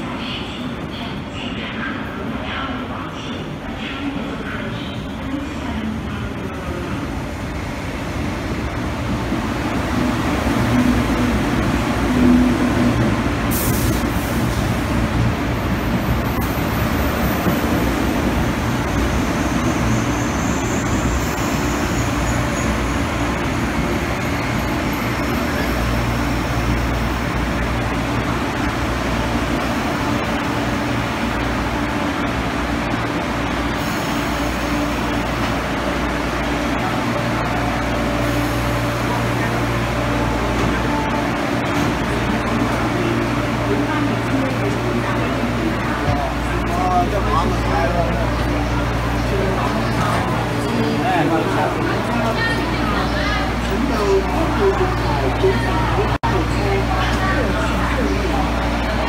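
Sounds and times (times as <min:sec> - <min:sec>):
electric train slowing to a stop: 0:05.0 - 0:59.0.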